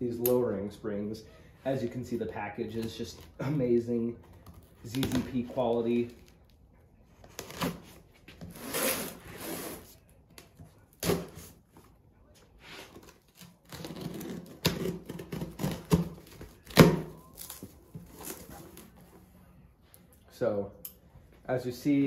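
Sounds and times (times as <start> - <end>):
knife slitting packing tape: 8.5 - 9.9, 13.0 - 17.6.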